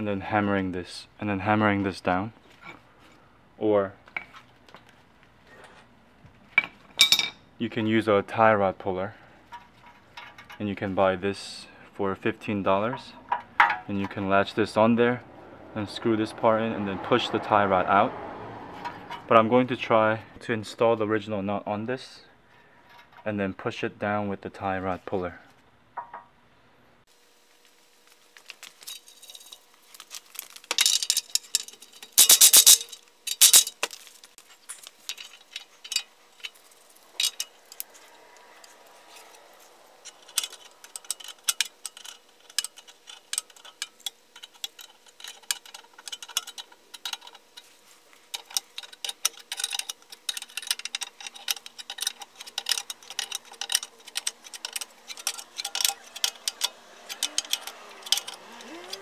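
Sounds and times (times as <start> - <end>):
metal tool clinks and clanks: 6.6 - 7.4, 28.7 - 29.7, 30.4 - 34.0, 34.6 - 59.0
wrench rapid clicking: 48.4 - 59.0.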